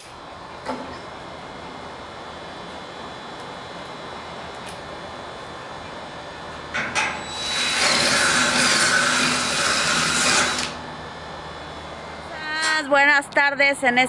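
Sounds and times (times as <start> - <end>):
cordless drill driving a screw: 7.3 - 10.8.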